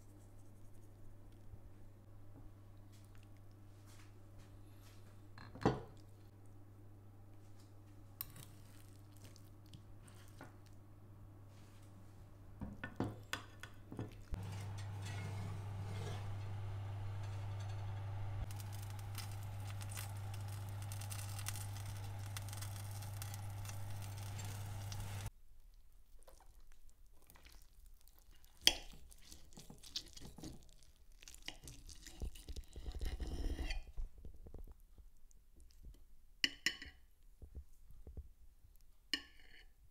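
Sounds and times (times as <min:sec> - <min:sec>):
knife and fork on a plate: 0:08.2 - 0:08.9, 0:14.3 - 0:25.2, 0:28.7 - 0:30.7
fan oven humming: 0:14.3 - 0:25.3.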